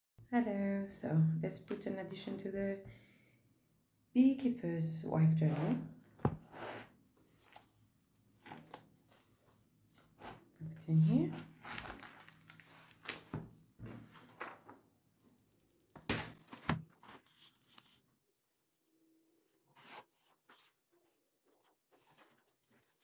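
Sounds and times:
paper rustling and knocking: 6.2s - 6.6s, 11.3s - 14.8s, 15.9s - 18.0s.

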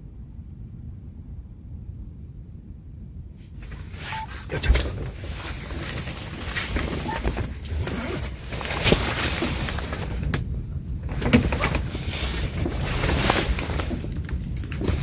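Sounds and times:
wind rumble on microphone: 0.0s - 15.0s
rustles: 3.4s - 15.0s.

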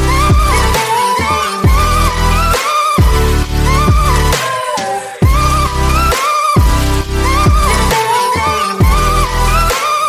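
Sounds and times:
pulsing heavy bass: 0.0s - 0.8s, 1.6s - 4.4s, 5.2s - 8.0s, 8.8s - 9.8s.

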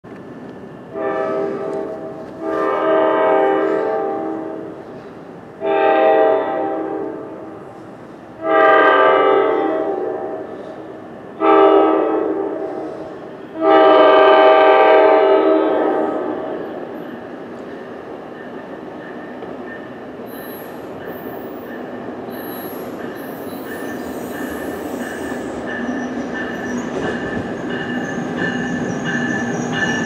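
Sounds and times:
locomotive air horn blasts: 0.9s - 4.7s, 5.6s - 7.4s, 8.4s - 10.6s, 11.4s - 16.4s.

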